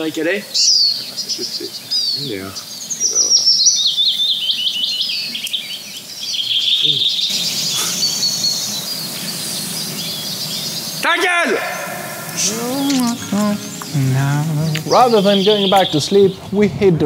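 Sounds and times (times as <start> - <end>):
songbirds singing: 0.0 - 17.0.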